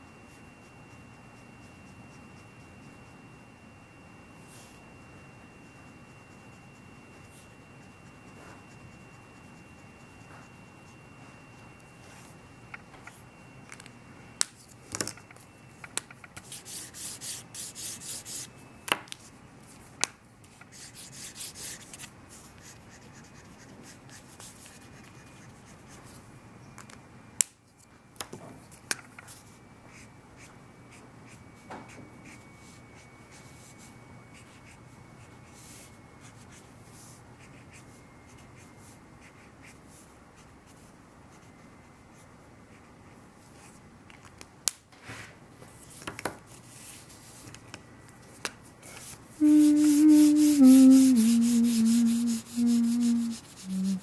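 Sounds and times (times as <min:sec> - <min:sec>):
marker rubbing on paper: 0:49.4 - 0:54.0.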